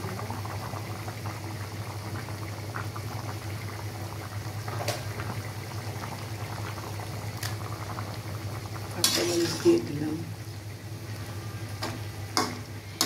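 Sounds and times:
curry bubbling in a pot: 0.0s - 13.0s.

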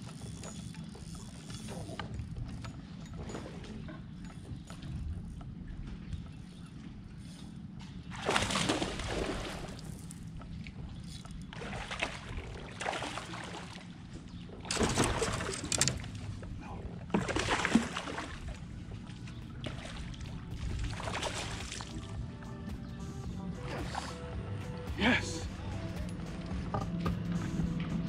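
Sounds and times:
steady low hum: 0.0s - 28.0s
water splashing against kayak: 19.6s - 22.2s.

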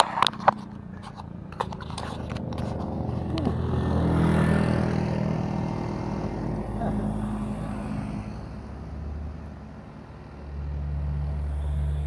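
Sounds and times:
camera handling clicks and scraping: 0.0s - 3.3s
motorcycle passing: 0.0s - 12.0s.

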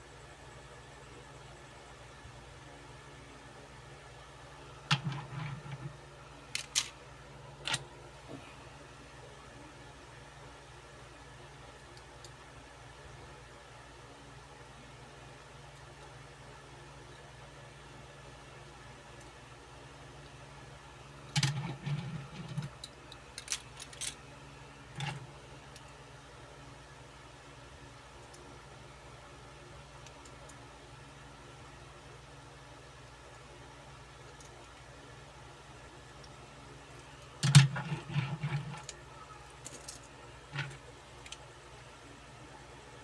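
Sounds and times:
toy cars rumbling on table: 37.4s - 38.9s.

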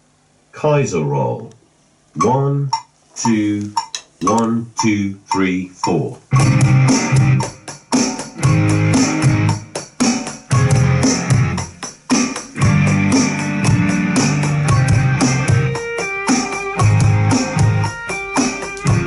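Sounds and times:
electronic drums playing: 2.2s - 19.0s
rock backing track: 6.2s - 19.0s.

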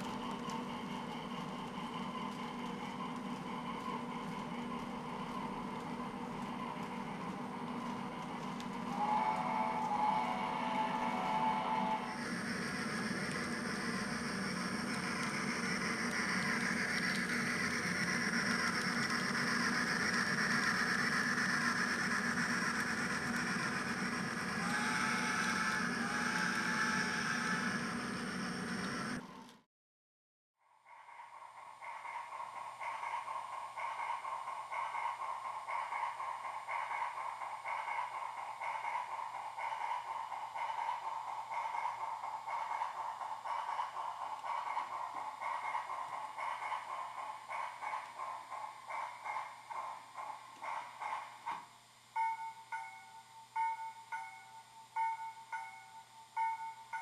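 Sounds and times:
model trains rolling: 0.0s - 29.6s, 30.7s - 57.0s.

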